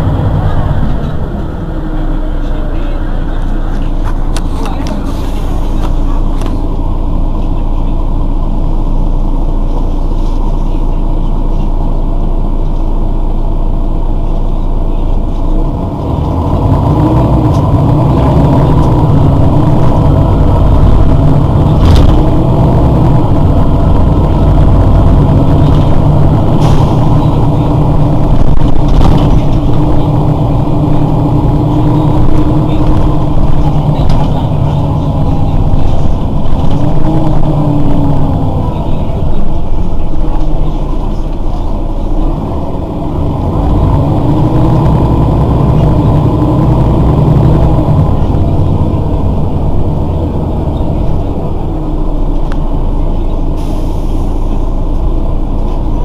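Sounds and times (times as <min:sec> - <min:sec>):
bus diesel engine idling: 0:00.0 - 0:56.0.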